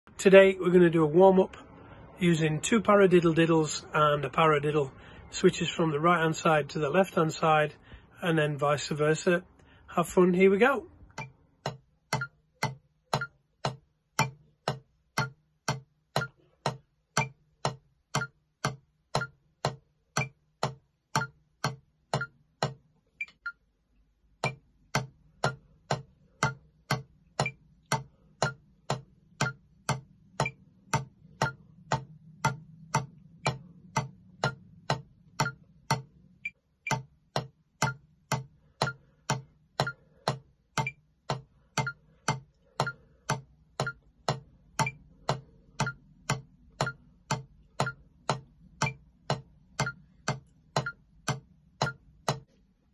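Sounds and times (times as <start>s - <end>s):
metronome ticking: 2.6s - 52.6s.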